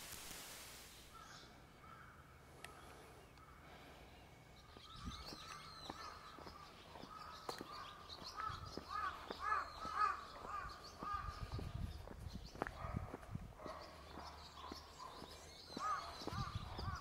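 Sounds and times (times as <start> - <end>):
small birds chirping: 0.8 - 17.0
crow cawing: 1.1 - 2.8, 5.9 - 11.4, 15.8 - 17.0
faint footsteps: 4.7 - 17.0.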